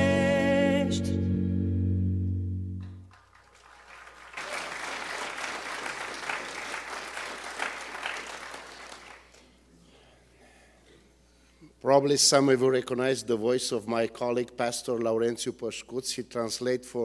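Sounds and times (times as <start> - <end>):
congregation clapping: 2.8 - 9.4.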